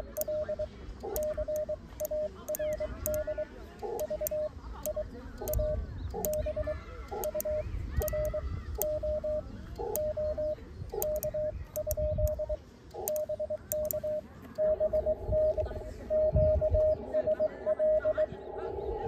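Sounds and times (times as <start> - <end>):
morse code tone: 0.0 - 18.2
paddle key clicks: 1.0 - 14.7.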